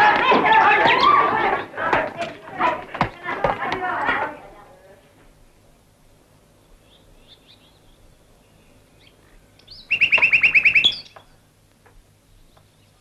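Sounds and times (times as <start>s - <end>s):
faint high chirps: 6.8s - 11.4s.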